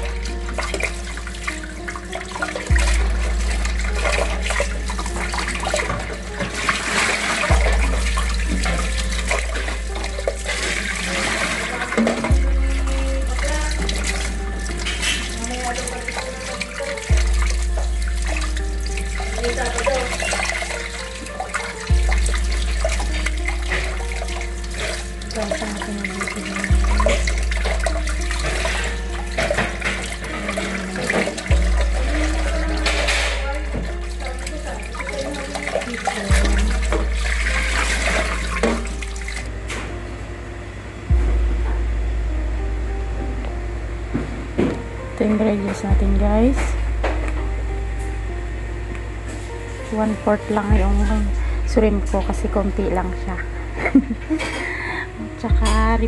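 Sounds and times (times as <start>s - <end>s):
small splashes and knocks: 0.0s - 40.0s
tap water running: 0.0s - 40.0s, 43.4s - 48.1s, 48.9s - 56.0s
background music: 0.0s - 56.0s.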